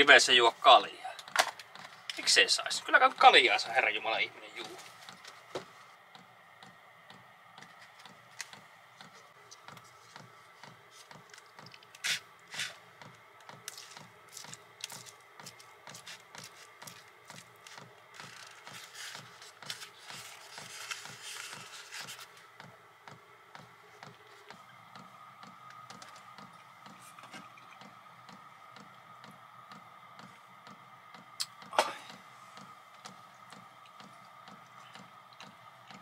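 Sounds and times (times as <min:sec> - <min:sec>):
utensil scraping and clicking: 0:07.6 - 0:22.7
wrap being handled: 0:13.6 - 0:22.4.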